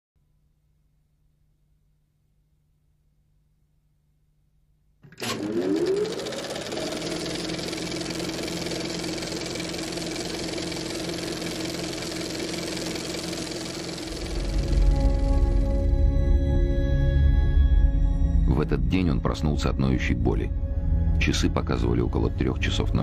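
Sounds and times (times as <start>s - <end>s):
film projector motor whirring: 5.0s - 15.9s.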